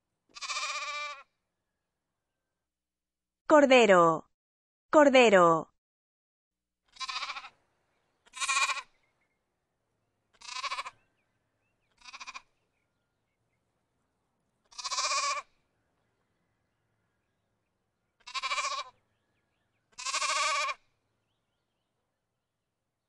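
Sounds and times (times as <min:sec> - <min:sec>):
lamb bleating: 0:00.3 - 0:01.3, 0:06.9 - 0:07.6, 0:08.3 - 0:09.0, 0:10.4 - 0:11.0, 0:12.0 - 0:12.6, 0:14.7 - 0:15.6, 0:18.2 - 0:19.0, 0:20.0 - 0:20.8.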